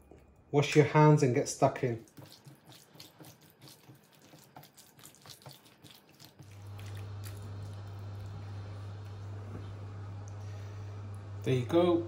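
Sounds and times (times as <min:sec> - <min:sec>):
wet squelching of marinade: 0:01.6 - 0:09.1
steady low hum: 0:06.4 - 0:12.0.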